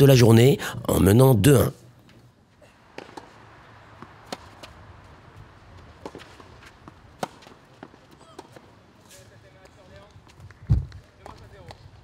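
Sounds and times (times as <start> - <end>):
tennis ball struck by racket: 4.0 - 4.8, 6.0 - 8.6.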